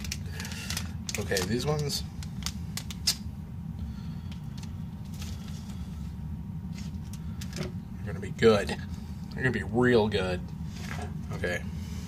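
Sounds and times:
card packs clicking and rustling: 0.0 - 3.2
low steady hum: 0.0 - 12.0.

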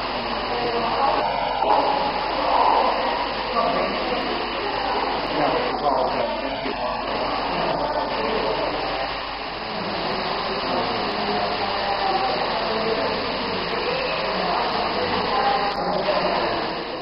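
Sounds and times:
water falling rushing hiss: 0.0 - 17.0.

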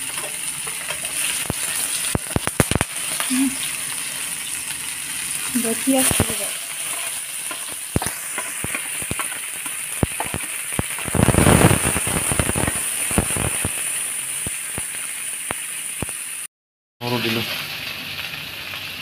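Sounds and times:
onions sizzling in hot oil: 0.0 - 19.0
metal spatula stirring: 0.1 - 2.8, 6.7 - 11.2
crackling pops: 0.9 - 3.5, 5.9 - 6.8, 7.4 - 16.3.

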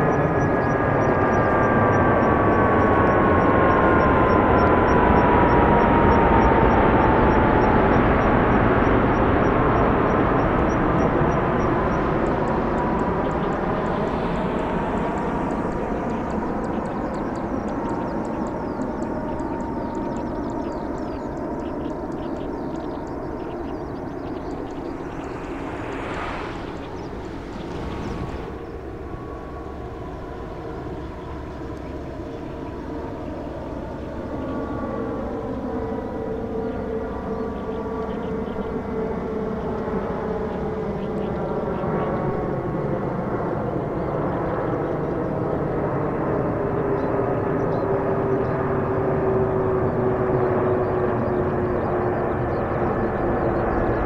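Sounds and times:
faint high chirping: 0.0 - 28.9
whining engine tones: 0.0 - 40.0
jet airliner rumble: 0.0 - 54.0.

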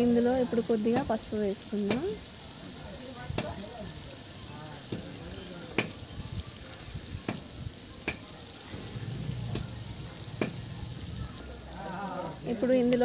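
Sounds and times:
onions sizzling in oil: 0.0 - 13.0
sharp pops of frying oil: 0.1 - 13.0.

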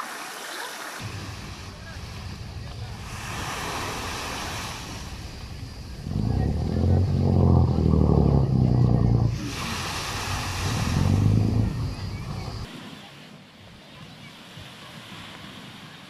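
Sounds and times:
waves washing on pebbles: 0.0 - 12.8
boat engine drone: 1.0 - 12.7.

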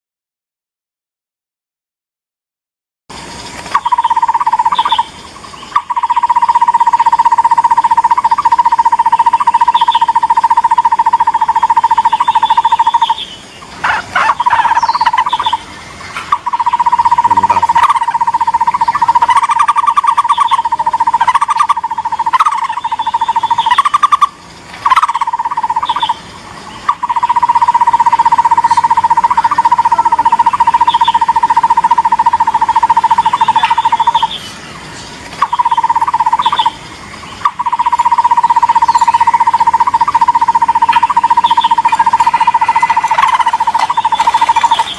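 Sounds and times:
barbet calling repeated notes: 3.6 - 44.9
higher bird notes: 3.7 - 44.9.

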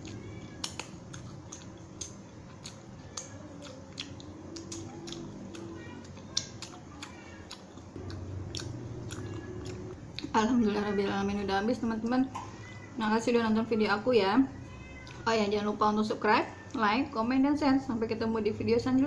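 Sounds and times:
wet mouth clicks and smacks: 0.1 - 10.3.

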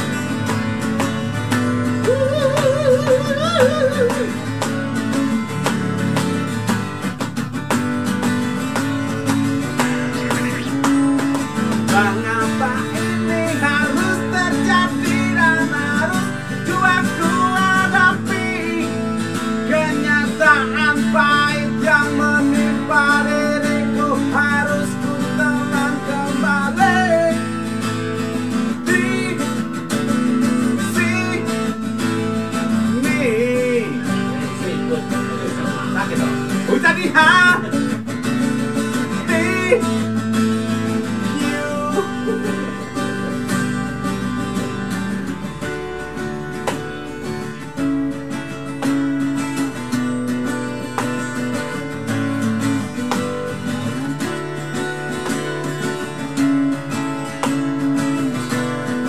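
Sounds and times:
man singing: 0.0 - 5.3, 8.9 - 27.8, 28.4 - 45.8
acoustic guitar strumming: 0.0 - 59.0.

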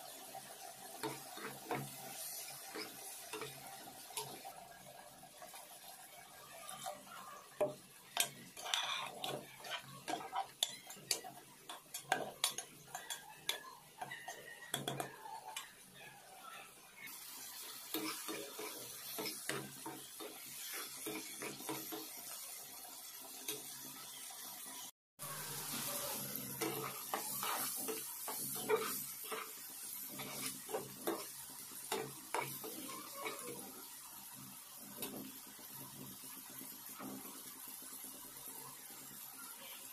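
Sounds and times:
spatula scraping a pan: 0.0 - 4.6, 5.4 - 15.8, 17.6 - 22.4, 25.2 - 33.8
food sizzling in a pan: 0.0 - 39.9
metal spoon scraping a pot: 8.1 - 15.7, 25.7 - 31.3.

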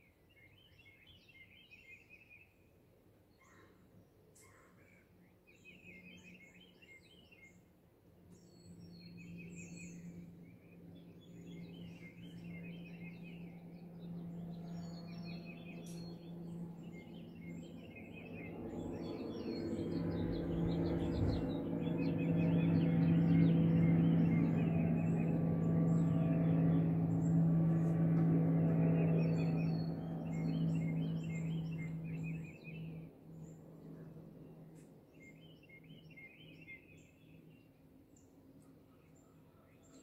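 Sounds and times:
small birds chirping: 8.3 - 40.0
motorboat engine drone: 8.7 - 37.2.

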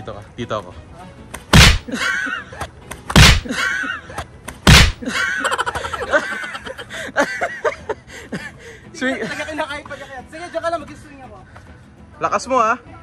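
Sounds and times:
loud thuds: 1.5 - 1.9, 3.1 - 3.5, 4.6 - 5.0.

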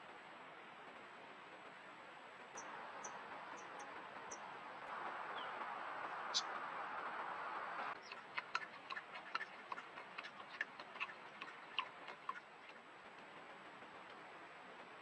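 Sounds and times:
steady hiss: 0.0 - 15.0
animal lapping water: 8.0 - 12.8.

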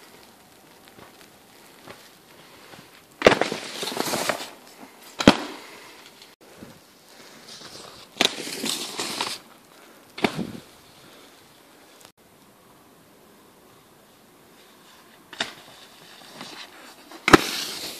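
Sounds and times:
skis crunching on snow: 0.0 - 6.4, 7.1 - 12.1, 14.5 - 17.9
sharp crack: 3.0 - 6.4, 7.5 - 10.7, 15.3 - 15.8, 16.4 - 17.9.

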